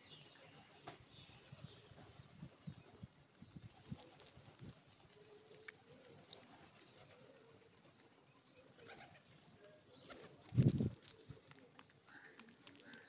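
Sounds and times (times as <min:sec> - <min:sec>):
pigeons cooing softly: 0:00.0 - 0:13.0
pigeon wing flaps: 0:10.0 - 0:11.4.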